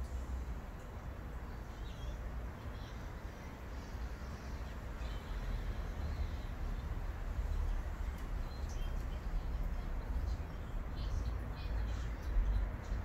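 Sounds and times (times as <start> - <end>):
faint bird chirps: 1.6 - 3.1.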